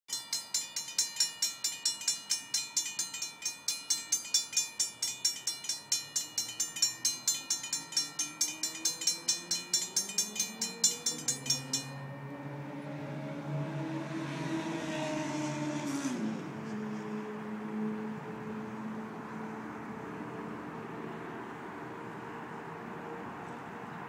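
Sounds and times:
railroad crossing bell ringing: 0.1s - 14.3s.

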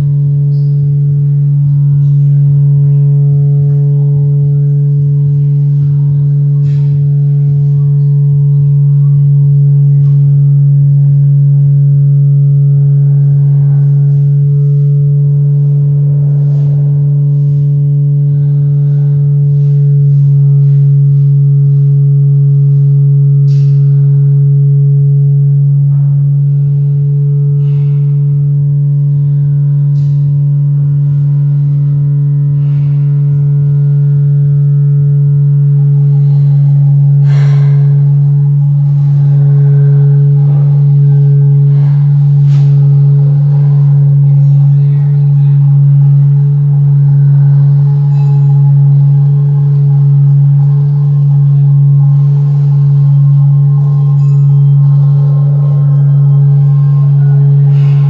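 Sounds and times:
loud low drone: 0.0s - 58.0s.

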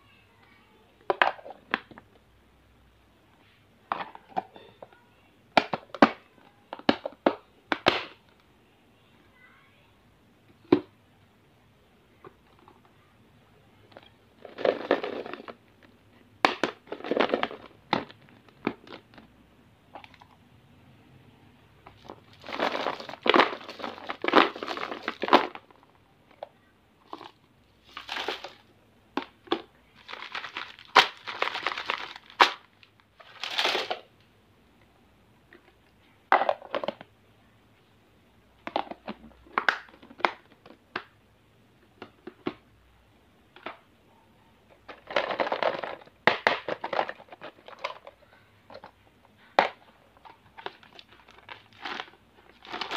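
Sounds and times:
wrapped candies crinkling: 22.0s - 25.8s, 27.1s - 28.7s, 29.6s - 34.1s, 50.2s - 52.9s.

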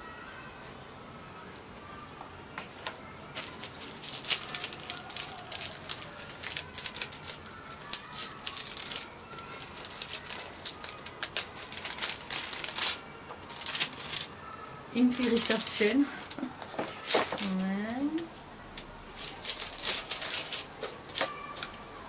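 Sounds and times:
tissue paper crinkling: 3.4s - 14.3s, 15.0s - 18.2s, 19.0s - 21.7s.

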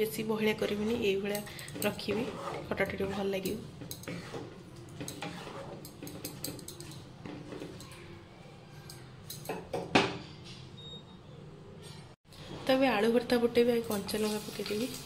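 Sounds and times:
utensils clinking on cookware: 0.6s - 10.7s.

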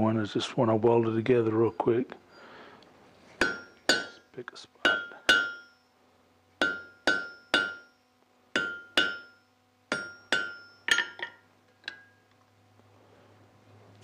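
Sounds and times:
anvil ringing: 3.4s - 4.2s, 4.8s - 5.9s, 6.6s - 8.0s, 8.6s - 12.2s
hammer striking steel on anvil: 3.4s - 5.9s, 6.6s - 12.2s.

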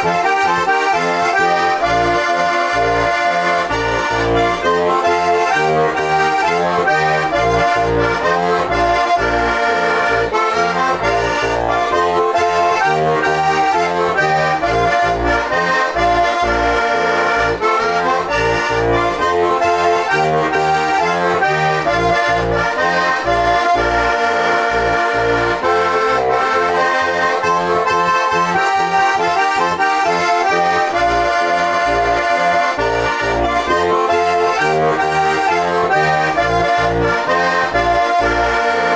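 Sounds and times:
button accordion playing folk tune: 0.0s - 38.9s.

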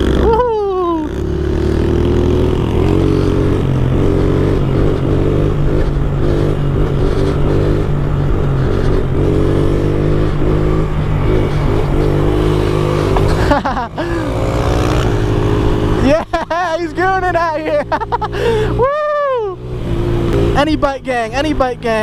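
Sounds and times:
small motorbike engine revving: 0.0s - 16.1s.

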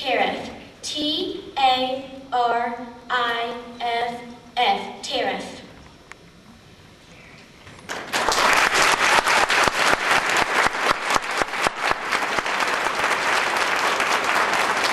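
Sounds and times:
audience applauding: 7.9s - 14.9s.

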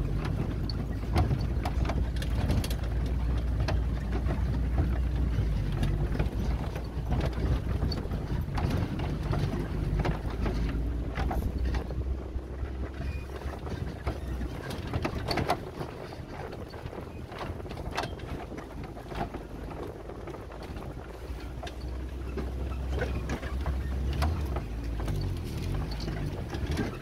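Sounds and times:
knocks and rattles: 0.0s - 27.0s
vehicle rumble off-road: 0.0s - 27.0s
wind on microphone: 0.0s - 27.0s.

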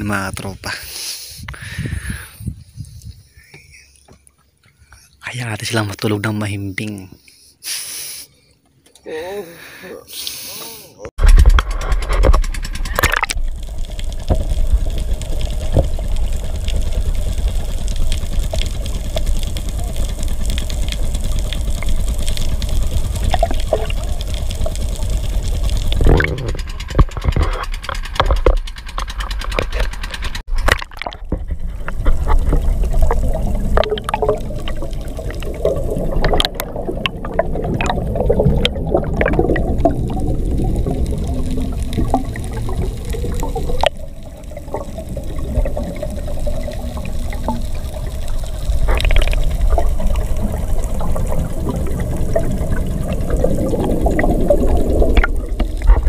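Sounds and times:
diver's bubbles gurgling: 11.3s - 56.0s.

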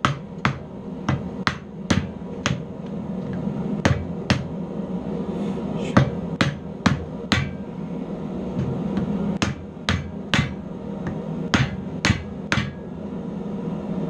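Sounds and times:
hammer striking hot metal: 0.0s - 2.7s, 3.8s - 4.6s, 6.0s - 7.7s, 8.6s - 12.9s.

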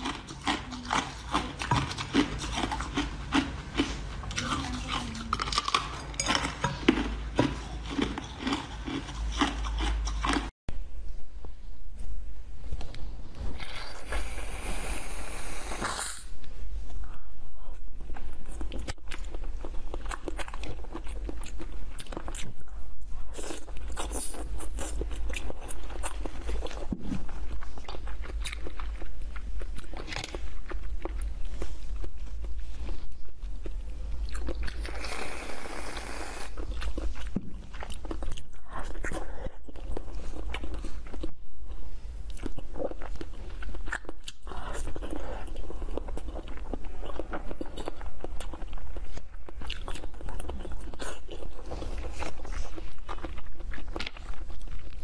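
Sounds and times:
biting and chewing candy: 0.0s - 10.5s, 23.3s - 55.0s
hiss: 35.0s - 36.5s.

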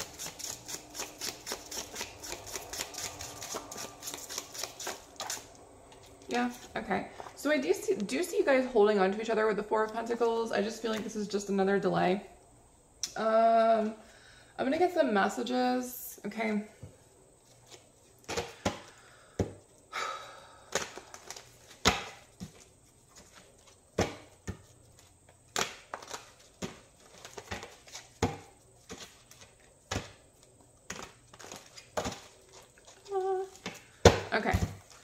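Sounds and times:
cards snapping and slapping: 0.0s - 5.5s, 20.7s - 22.2s, 25.5s - 28.3s
cards swishing: 0.0s - 5.5s.

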